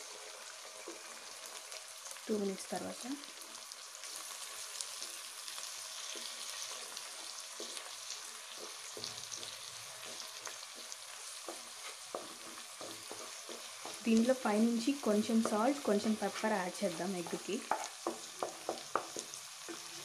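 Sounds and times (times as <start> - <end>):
eggs sizzling in hot oil: 0.0 - 20.0
wooden spatula scraping and tapping: 0.8 - 1.2, 5.9 - 20.0.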